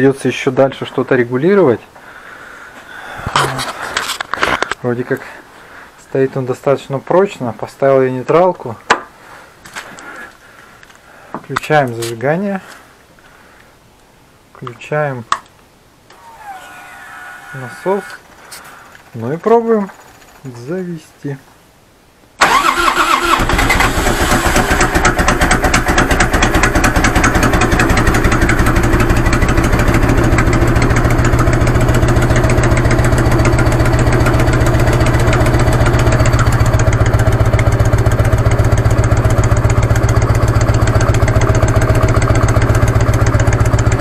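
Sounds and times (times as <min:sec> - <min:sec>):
motorcycle engine idling: 0:24.6 - 0:44.0.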